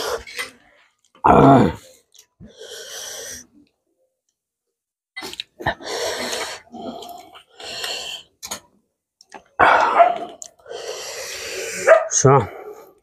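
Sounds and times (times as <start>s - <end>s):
voiced grunt: 1.2s - 1.9s
wet eating clicks and slurps: 5.2s - 5.7s.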